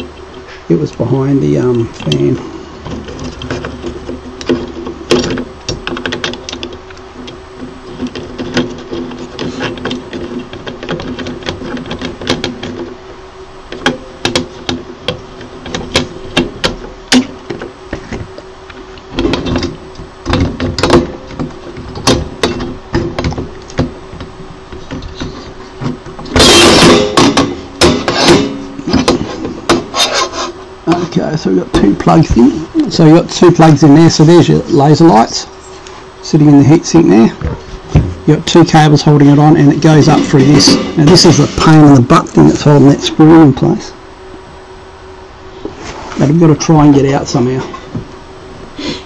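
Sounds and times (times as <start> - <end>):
steady low hum: 0.0 - 49.0
metal heatsink knocks: 19.2 - 24.3, 26.1 - 29.9.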